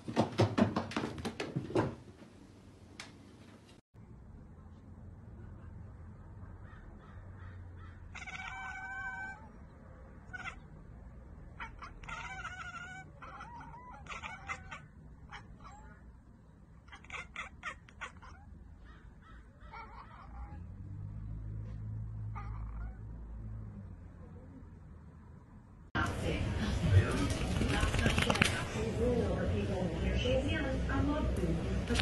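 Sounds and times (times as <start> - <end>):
cats calling: 6.6 - 10.8, 11.4 - 20.8, 22.1 - 23.2.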